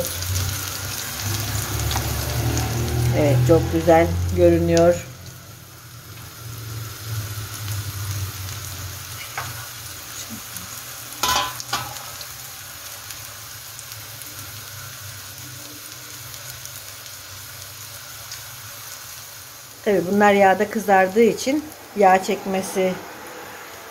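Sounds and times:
food sizzling in hot oil: 0.0 - 23.9
tongs clinking against pan: 11.2 - 12.1.

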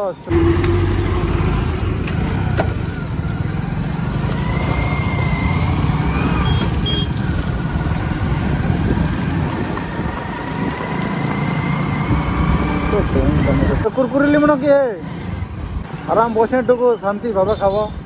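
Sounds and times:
motorcycle engine rumble: 0.2 - 13.9.

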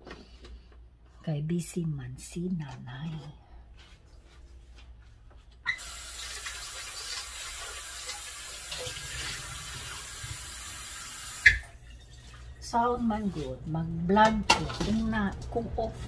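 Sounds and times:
water running into sink: 5.7 - 12.9.

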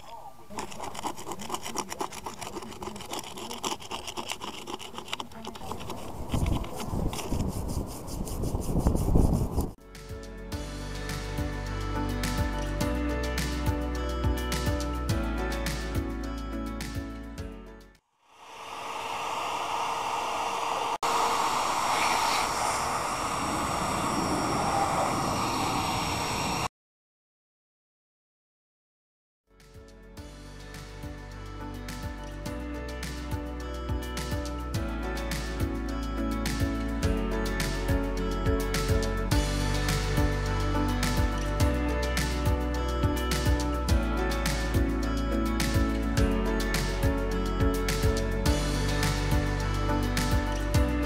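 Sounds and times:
metal tools scraping mortar: 0.0 - 8.5
wire brush scrubbing brick: 0.0 - 9.8
shop vacuum running: 18.4 - 26.7.

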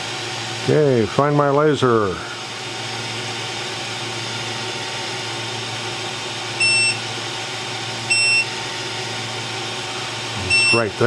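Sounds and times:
steady machine hum: 0.0 - 11.0
short high electronic beeps: 6.6 - 7.0, 8.1 - 8.5, 10.4 - 10.9.

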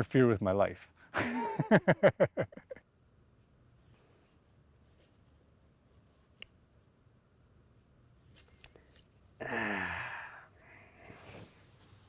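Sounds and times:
man laughing: 1.2 - 2.8
clicks of stones handled: 8.0 - 9.4.

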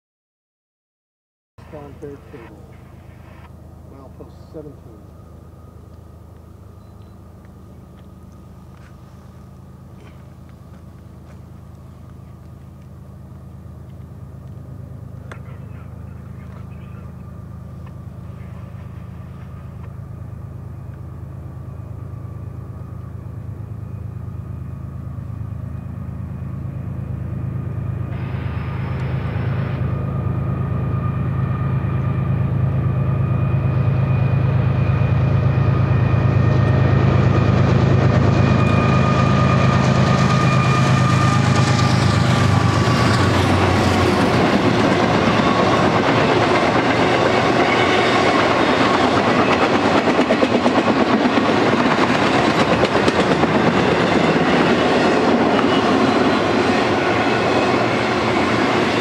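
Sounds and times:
diesel locomotive engine rumble: 1.6 - 59.0
faint steady high tone: 6.6 - 8.2.

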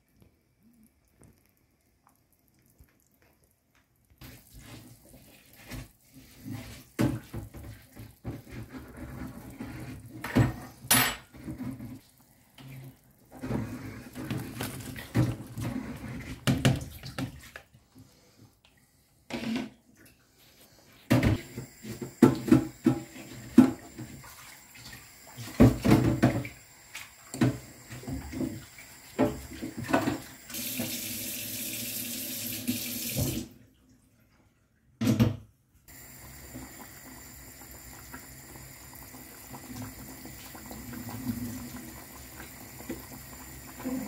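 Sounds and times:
pots and utensils clinking: 10.2 - 11.8
water running and splashing: 21.2 - 33.5, 35.9 - 44.0.

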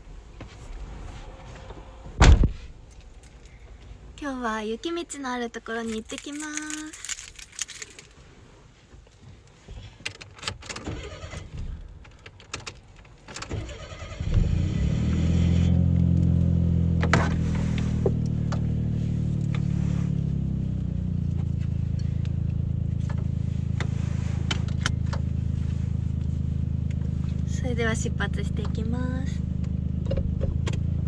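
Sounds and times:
car engine starting and idling: 8.4 - 31.0.

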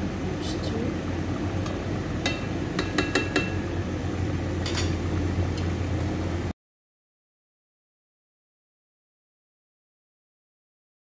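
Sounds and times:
steady low hum: 0.0 - 6.5
ladle clinking against pot: 2.2 - 3.6, 4.6 - 5.0.

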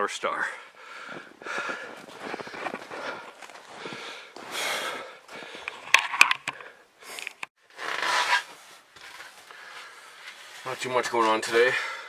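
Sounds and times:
person breathing hard: 0.6 - 5.9.

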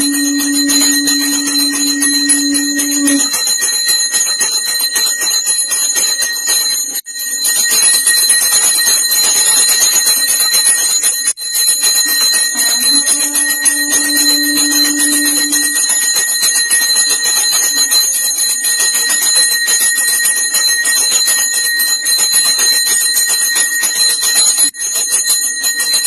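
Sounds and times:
steady low note: 0.0 - 3.3, 12.1 - 15.9
bells ringing rapidly: 0.0 - 6.6, 7.2 - 26.0.

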